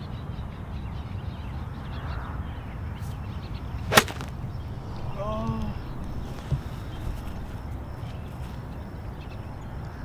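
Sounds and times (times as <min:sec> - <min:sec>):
golf club striking ball: 0:03.9 - 0:04.4.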